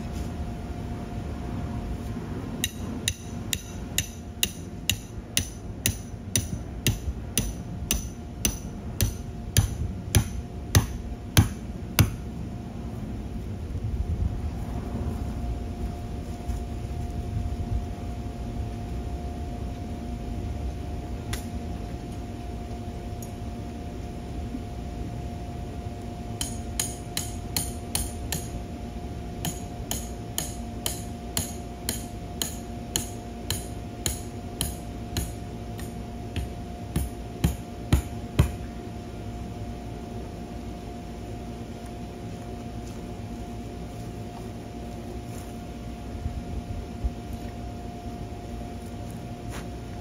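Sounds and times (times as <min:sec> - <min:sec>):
hammer clanking on metal stakes: 0:02.6 - 0:12.2, 0:26.4 - 0:28.6, 0:29.4 - 0:38.6.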